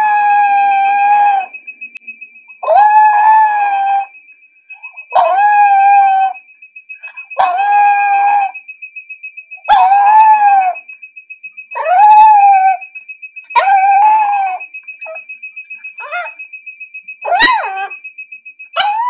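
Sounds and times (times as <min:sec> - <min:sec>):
dog howling: 0:00.0 - 0:01.5, 0:02.6 - 0:04.1, 0:05.1 - 0:06.4, 0:07.4 - 0:08.5, 0:17.3 - 0:17.9.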